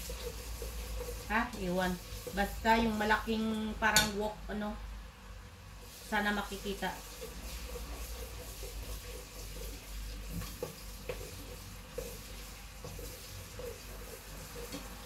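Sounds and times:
food sizzling in a pan: 0.0 - 15.0.

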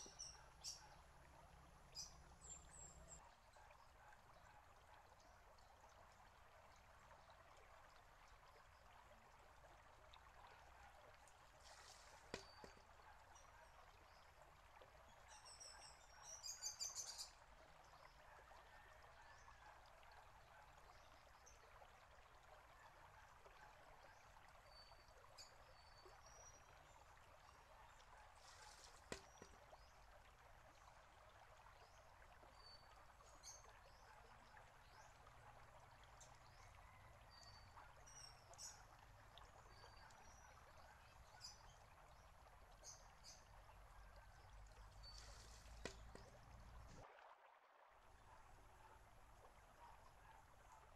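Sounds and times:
fountain water trickling: 0.0 - 50.9.

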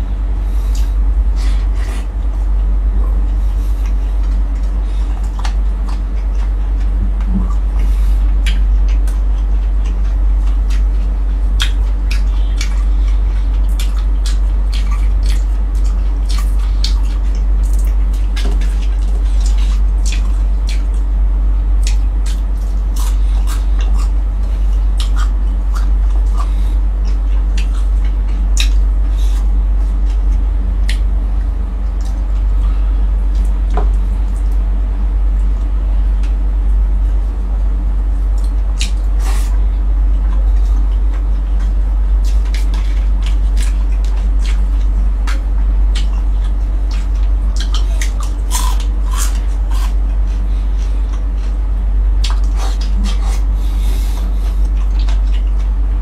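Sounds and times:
loud low hum: 0.0 - 56.0
wet chewing and lip smacks: 3.8 - 21.1, 21.8 - 31.1, 38.4 - 51.6, 52.2 - 55.8.

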